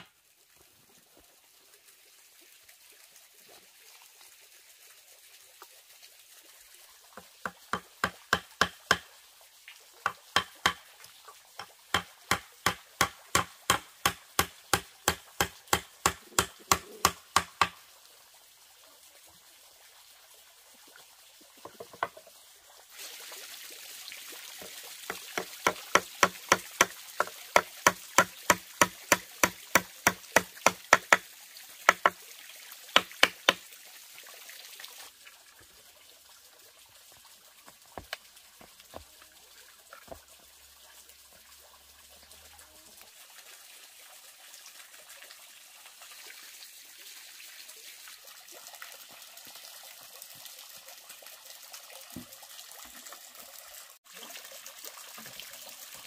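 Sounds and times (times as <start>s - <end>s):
water trickling: 0.0s - 56.0s
hammer nailing wooden boards: 12.0s - 17.8s, 27.6s - 31.2s.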